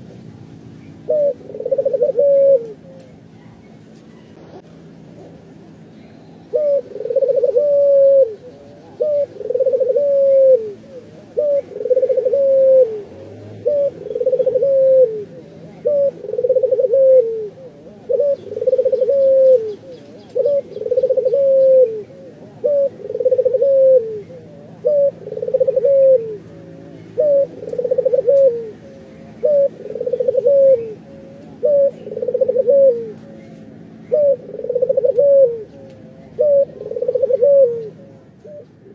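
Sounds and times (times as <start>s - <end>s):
dove cooing: 1.0s - 38.9s.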